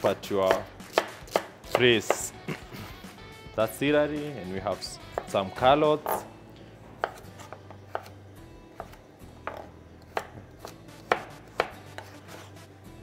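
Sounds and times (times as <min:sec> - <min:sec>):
knife chopping on plastic board: 0:00.5 - 0:02.3, 0:05.1 - 0:05.4, 0:07.0 - 0:12.5.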